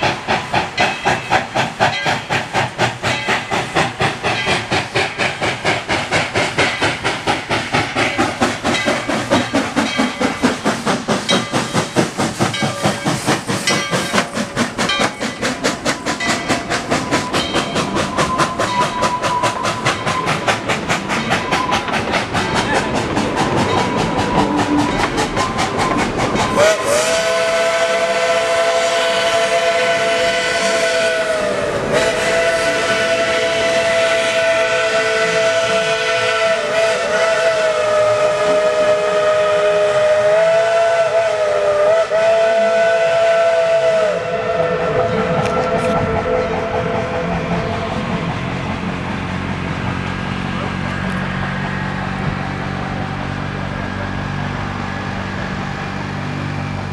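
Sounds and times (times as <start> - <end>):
steam locomotive chugging past: 0.0 - 56.9
locomotive chime whistle: 17.1 - 20.5, 23.7 - 48.2.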